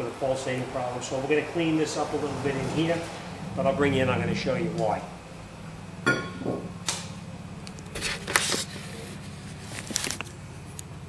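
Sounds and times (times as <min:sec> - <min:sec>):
steady low hum: 0:00.0 - 0:11.0
sharp metallic clank: 0:06.0 - 0:07.1.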